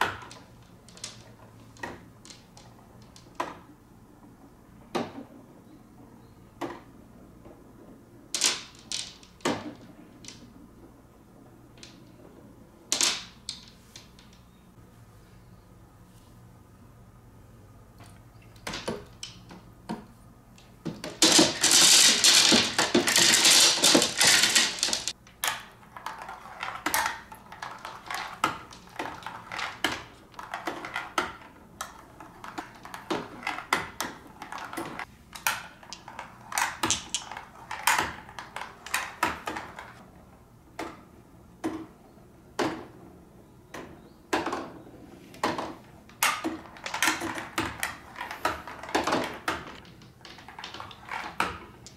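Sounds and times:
loud dense clatter of marbles: 0:00.0 - 0:03.5, 0:08.3 - 0:10.6, 0:12.9 - 0:14.4, 0:20.8 - 0:40.0, 0:45.4 - 0:51.9
marbles clicking in marble run: 0:21.0 - 0:39.8.

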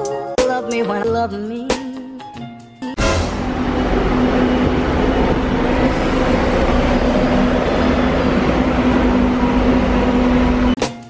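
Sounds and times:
diesel bus engines rumbling: 0:03.0 - 0:10.8.

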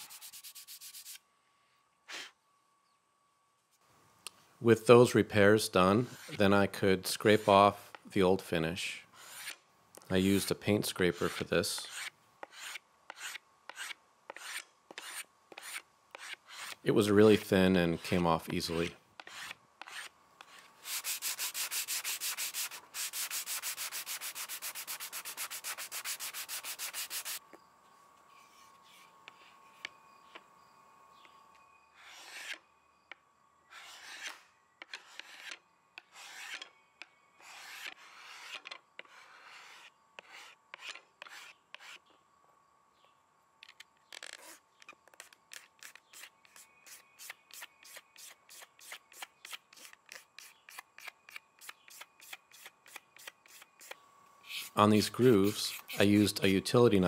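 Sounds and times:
paint scraper scraping wood: 0:11.1 - 0:16.8, 0:17.8 - 0:27.4, 0:32.0 - 0:32.6, 0:33.7 - 0:36.7, 0:37.4 - 0:42.0, 0:51.7 - 0:56.3.

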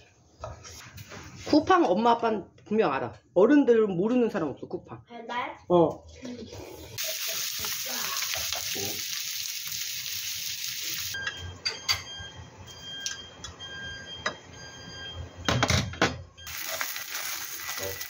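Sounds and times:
sausages sizzling in a frying pan: 0:06.9 - 0:11.2, 0:16.5 - 0:18.0.

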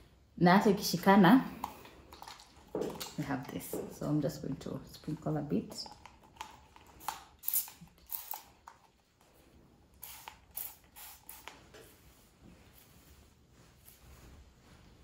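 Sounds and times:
spray bottle hissing sprays: 0:10.0 - 0:11.8.

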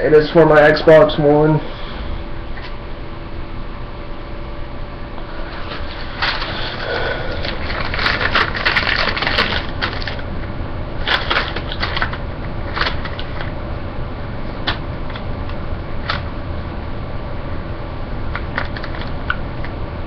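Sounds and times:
paper receipts rustling: 0:05.4 - 0:10.3, 0:11.0 - 0:13.5.

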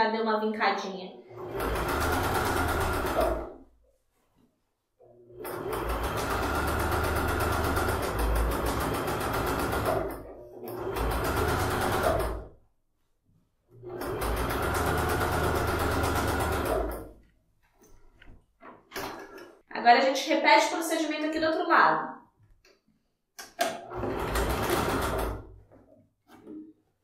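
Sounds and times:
electric sewing machine stitching: 0:01.2 - 0:03.7, 0:05.1 - 0:12.6, 0:13.7 - 0:17.2, 0:23.8 - 0:25.6.

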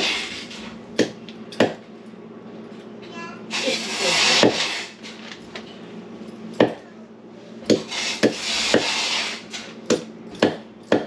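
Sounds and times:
knife chopping on wooden block: 0:01.0 - 0:01.8, 0:04.4 - 0:04.7, 0:06.6 - 0:06.8, 0:07.7 - 0:09.0, 0:09.9 - 0:11.0
hiss: 0:03.5 - 0:04.9, 0:07.9 - 0:09.5.

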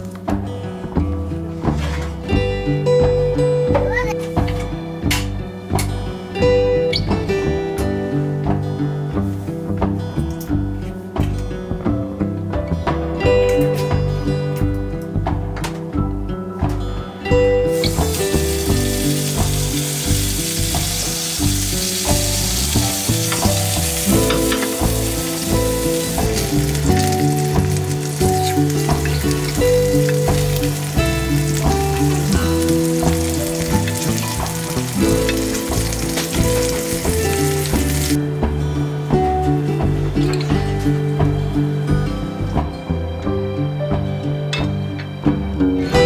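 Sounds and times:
background music: 0:00.0 - 0:46.0
sausages sizzling: 0:17.6 - 0:38.2.

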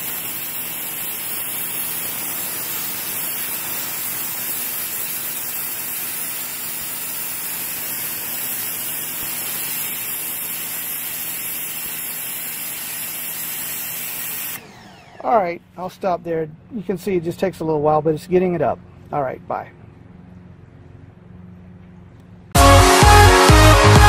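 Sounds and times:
pressure washer spraying concrete: 0:00.0 - 0:15.0.

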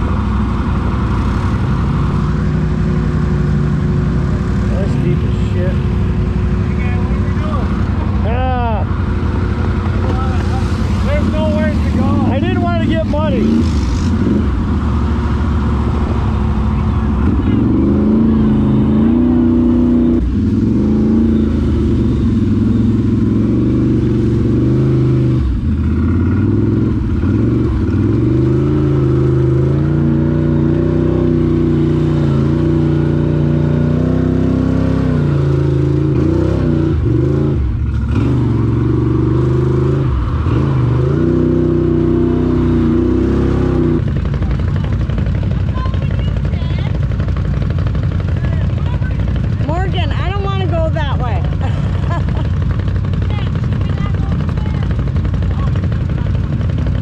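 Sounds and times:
atv engine revving: 0:00.0 - 0:57.0.

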